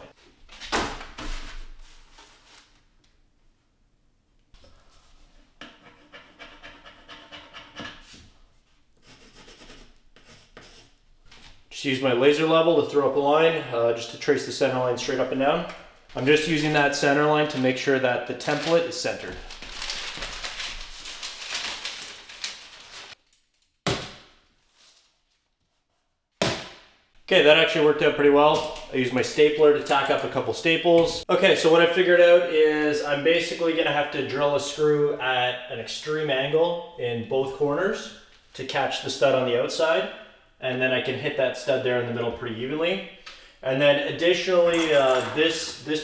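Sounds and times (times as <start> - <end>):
paper rustling: 0.5 - 2.8, 16.2 - 23.7
pencil scratching on wall: 5.5 - 8.2, 9.0 - 11.0.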